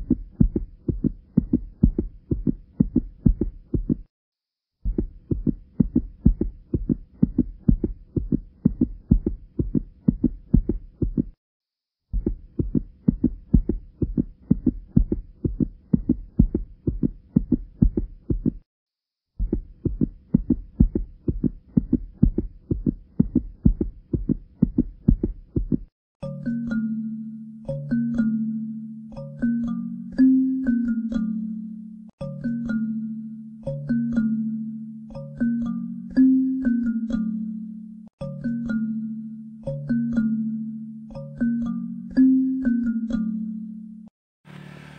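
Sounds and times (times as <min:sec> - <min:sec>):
heartbeat: 0:00.0 - 0:04.1, 0:04.8 - 0:11.4, 0:12.1 - 0:18.7, 0:19.4 - 0:25.9.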